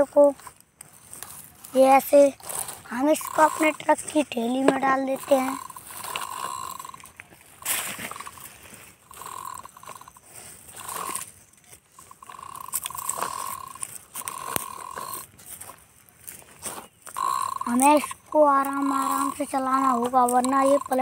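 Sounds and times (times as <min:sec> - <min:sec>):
toy truck wheels rattling over stones: 0:00.0 - 0:21.0
sharp clicks: 0:00.7 - 0:08.5, 0:10.8 - 0:15.3
steady high tone: 0:01.7 - 0:11.3, 0:17.1 - 0:21.0.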